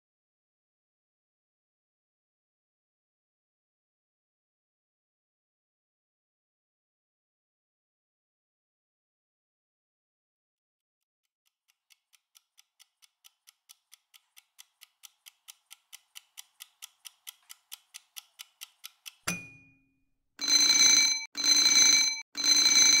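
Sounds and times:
fast clock ticking: 0:11.7 - 0:19.3
alarm ringing: 0:20.4 - 0:23.0.

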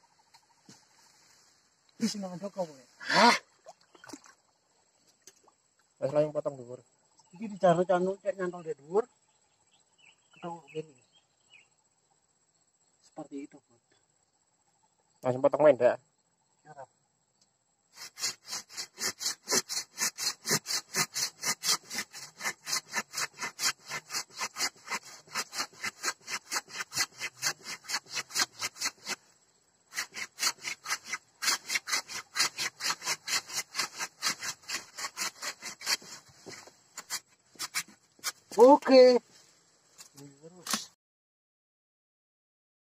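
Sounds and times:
hand saw cutting wood: 0:18.0 - 0:29.2, 0:29.9 - 0:38.6.

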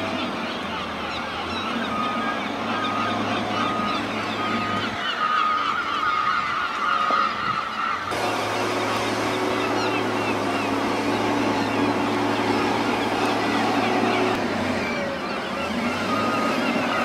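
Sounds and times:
flock of gulls calling: 0:00.0 - 0:17.0
compactor engine humming: 0:08.1 - 0:17.0.

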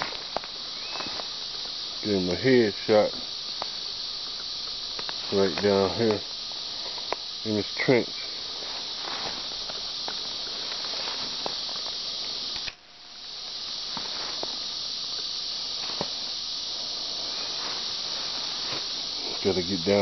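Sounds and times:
footsteps on brush: 0:00.0 - 0:02.0, 0:02.9 - 0:07.4, 0:08.1 - 0:12.6, 0:13.8 - 0:16.4
insect chorus buzzing: 0:00.0 - 0:20.0.

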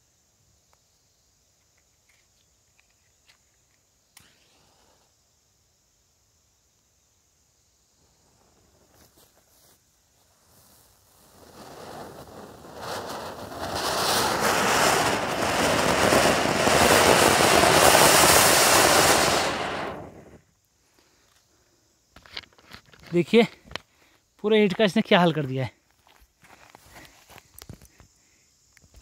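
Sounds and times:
fountain firework hissing: 0:10.6 - 0:20.4.

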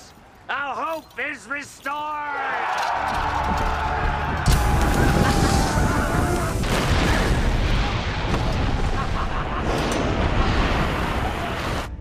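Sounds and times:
shouting voices: 0:01.3 - 0:07.4
cannon fire: 0:04.4 - 0:11.6
explosions: 0:04.4 - 0:12.0.

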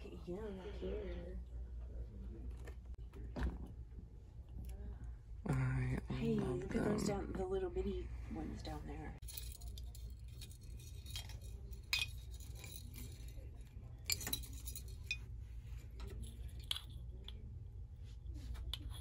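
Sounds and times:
low steady hum: 0:00.0 - 0:19.0
glass ornaments clinking: 0:09.2 - 0:15.4.

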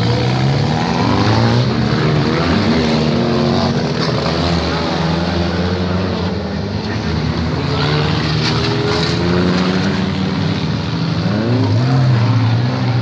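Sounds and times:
car engines running: 0:00.0 - 0:13.0
engine revving: 0:00.0 - 0:13.0.

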